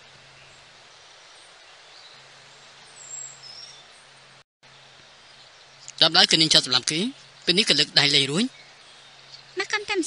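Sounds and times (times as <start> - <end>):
low hiss: 0.0 - 10.0.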